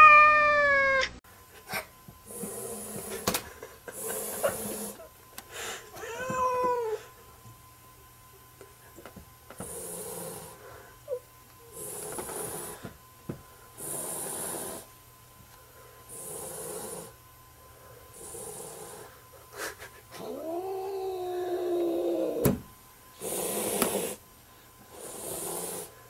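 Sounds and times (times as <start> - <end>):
cat yowling: 0.0 - 1.2, 6.0 - 7.1, 20.2 - 22.5
cat hissing: 23.2 - 24.2.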